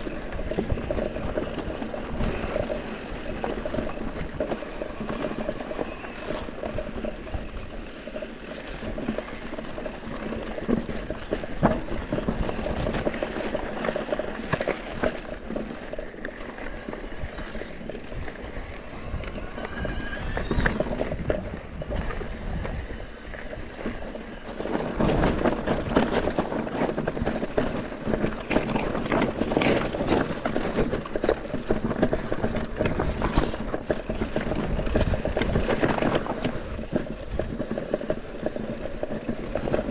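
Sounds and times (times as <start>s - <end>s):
bike rattling and knocking: 0.0s - 39.9s
tyres crunching over gravel: 0.0s - 39.9s
wind on microphone: 17.0s - 39.9s.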